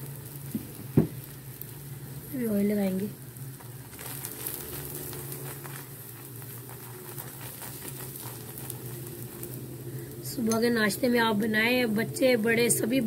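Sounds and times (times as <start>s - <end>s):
flatbread sizzling on a griddle: 0.0s - 13.0s
low steady hum: 0.0s - 13.0s
steel spoon spreading oil: 3.5s - 11.6s.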